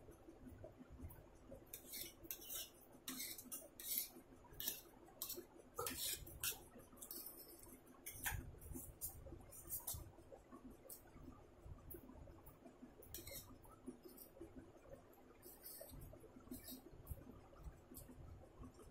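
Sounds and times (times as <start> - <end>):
metal fork scraping a plate: 1.7 - 8.4, 13.1 - 14.3.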